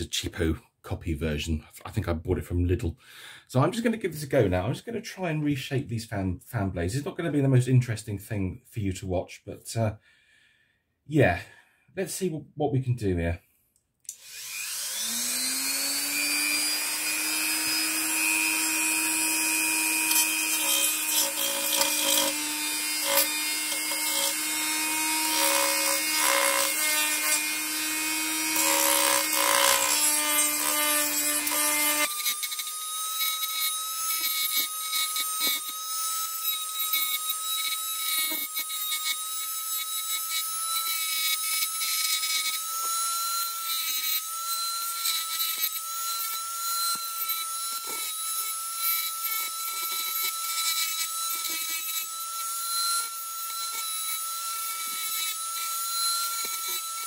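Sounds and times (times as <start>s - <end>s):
rotary tool motor whine: 14.1s - 57.0s.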